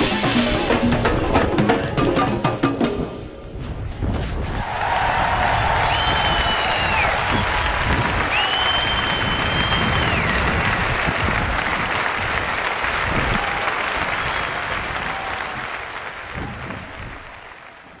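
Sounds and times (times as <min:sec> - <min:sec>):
audience applauding: 0:04.5 - 0:18.0.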